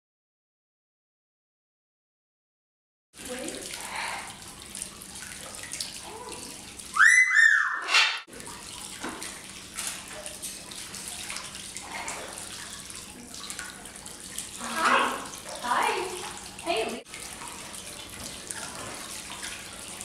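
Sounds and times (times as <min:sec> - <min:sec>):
parrot harsh squawk: 0:06.9 - 0:08.2, 0:14.6 - 0:15.3
parrot whistled call: 0:06.9 - 0:08.2.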